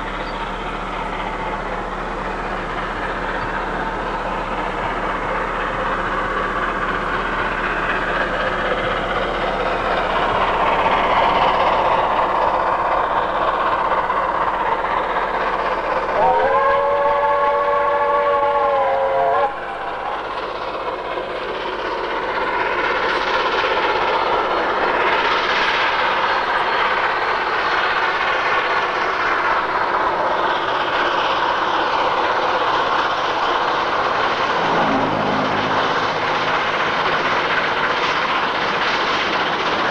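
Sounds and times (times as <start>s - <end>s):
steam locomotive running: 0.0s - 39.9s
steam whistle chord: 16.2s - 20.2s, 34.5s - 36.8s.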